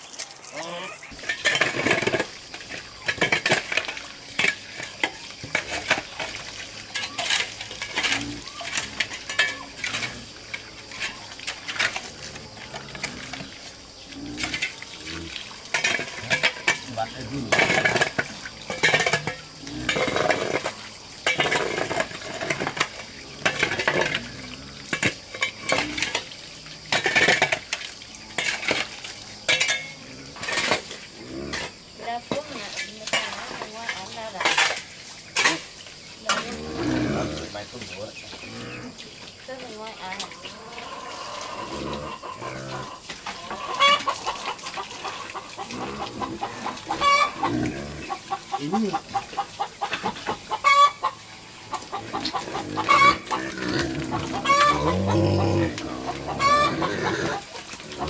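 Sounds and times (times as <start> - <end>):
metal kitchenware clinking: 1.1 - 12.1, 15.7 - 24.2, 26.9 - 27.8, 29.5 - 30.9.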